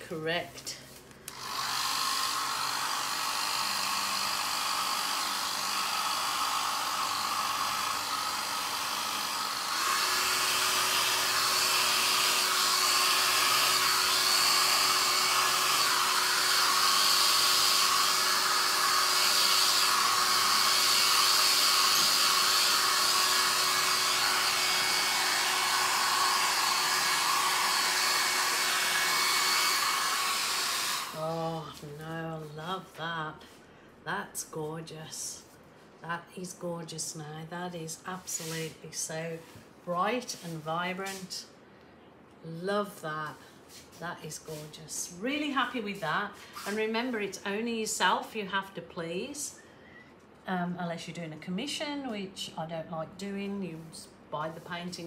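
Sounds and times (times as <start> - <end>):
hair dryer blowing air: 0.9 - 33.3, 38.2 - 41.4, 43.0 - 47.6.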